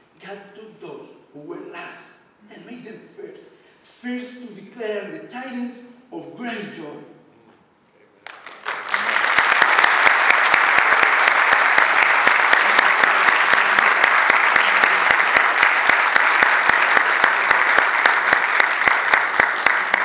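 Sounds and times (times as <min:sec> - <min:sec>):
audience applauding: 0:08.2 - 0:20.0
person clapping close by: 0:08.3 - 0:20.0.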